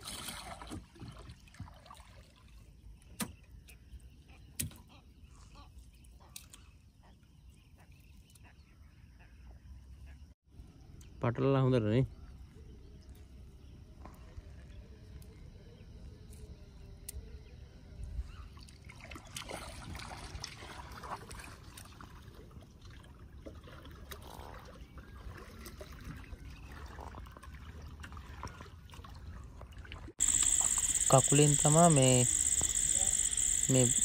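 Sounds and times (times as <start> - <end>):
water trickling and splashing: 0.0 - 5.4, 18.4 - 30.2.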